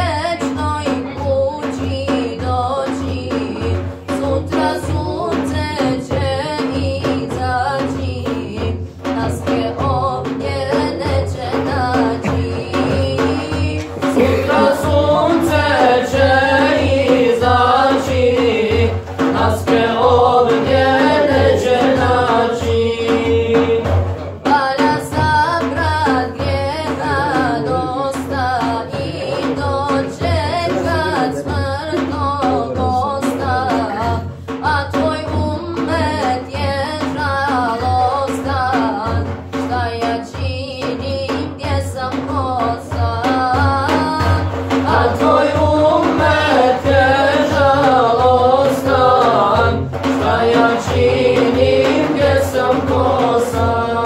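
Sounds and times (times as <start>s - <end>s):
frame drum beat: 0.0s - 54.0s
men singing a hymn: 11.9s - 25.0s, 27.0s - 34.4s, 44.7s - 54.0s.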